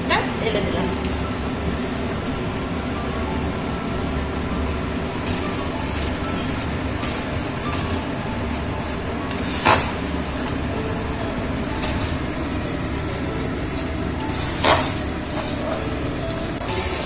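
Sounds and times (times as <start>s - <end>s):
steady background noise: 0.0s - 17.0s
metal spatula scraping a pan: 9.3s - 10.6s, 11.6s - 16.1s.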